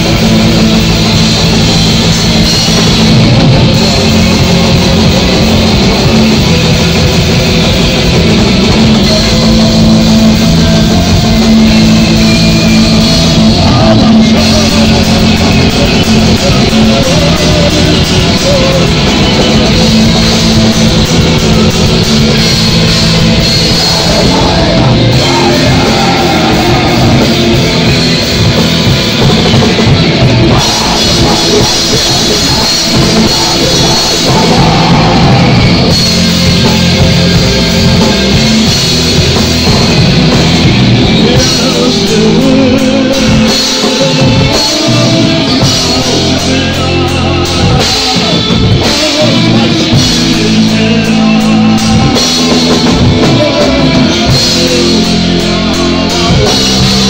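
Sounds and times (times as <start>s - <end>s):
live rock band playing: 0.0s - 57.0s
vocalist singing: 0.0s - 57.0s.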